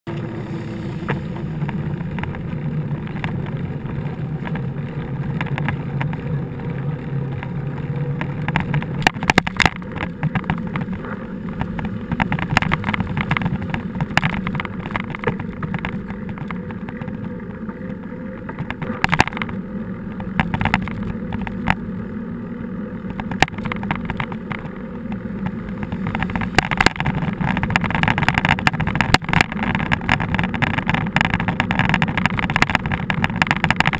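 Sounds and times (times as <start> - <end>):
low rumble of tyres and wind: 0.0 - 33.9
bike rattling over rough ground: 0.1 - 33.9.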